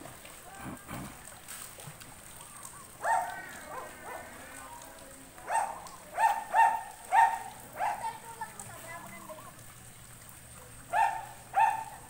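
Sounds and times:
faint splashing water: 0.0 - 12.0
dog barking: 3.0 - 4.4, 5.4 - 8.2, 10.9 - 12.0.

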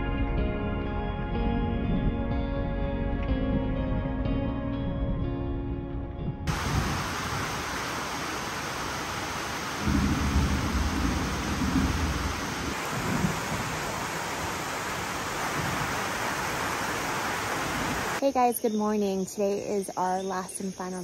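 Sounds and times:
thunder rumbling: 1.4 - 5.6, 6.2 - 18.2
heavy rain hissing: 6.5 - 18.2.

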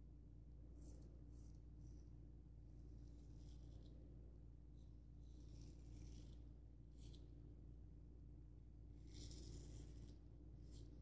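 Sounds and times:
low steady hum: 0.0 - 11.0
razor scraping stubble: 9.0 - 11.0.

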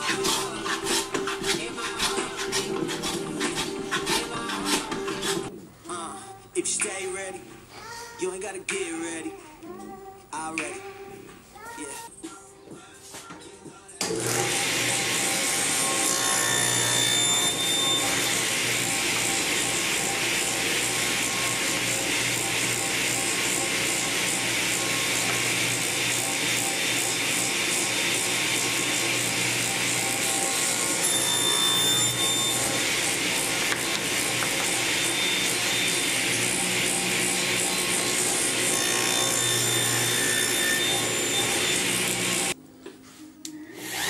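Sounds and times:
table saw cutting wood: 0.0 - 5.5, 14.0 - 42.6, 43.8 - 44.0.

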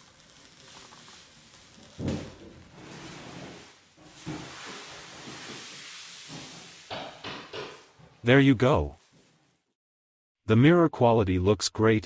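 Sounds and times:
plastic film peeling off glass: 0.0 - 4.4.

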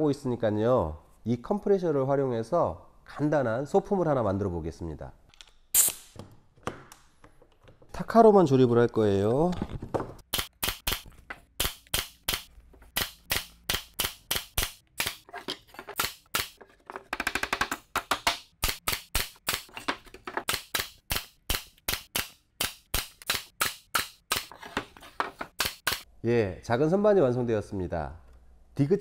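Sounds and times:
air stapler shots into wood: 5.8 - 6.2, 10.3 - 15.2, 20.5 - 24.5, 25.6 - 26.0.

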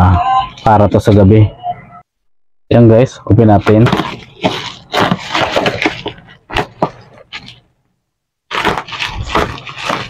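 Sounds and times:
plastic wrapping crinkling and tearing: 3.9 - 7.6, 8.5 - 10.0.

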